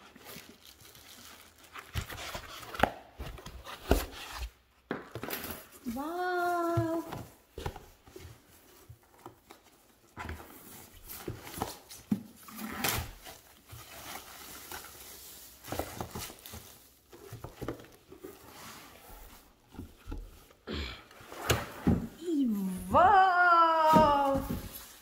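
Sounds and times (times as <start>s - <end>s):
plastic packaging crinkling: 0.0s - 2.4s.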